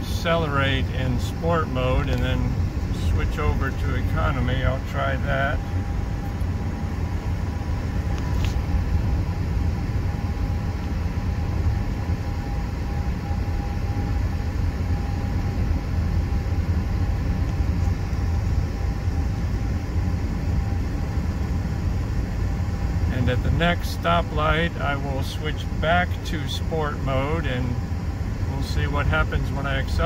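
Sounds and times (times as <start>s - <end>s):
car engine and road noise: 0.0s - 18.8s
faint steady tone: 0.0s - 30.0s.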